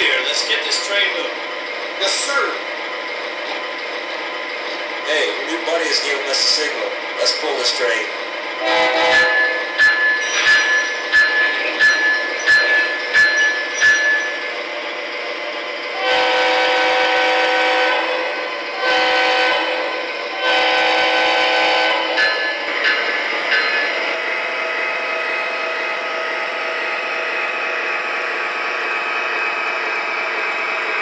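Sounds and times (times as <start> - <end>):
toy train horn blasts: 8.6 - 9.6, 16.0 - 18.2, 18.8 - 19.8, 20.4 - 22.4.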